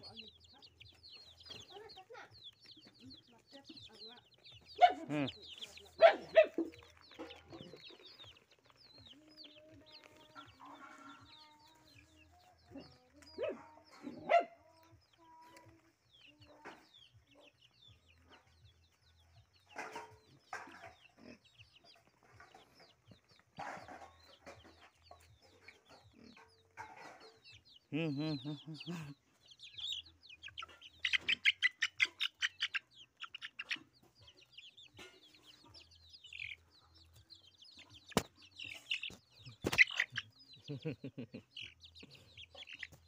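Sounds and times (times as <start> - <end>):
chicken clucking: 0.0 - 43.0
chicks peeping: 0.0 - 43.0.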